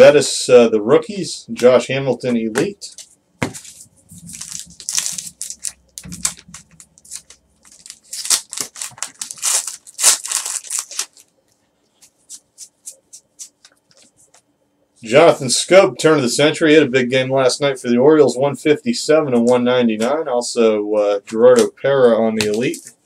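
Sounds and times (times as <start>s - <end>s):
wrapper crinkling and tearing: 4.1s - 11.3s.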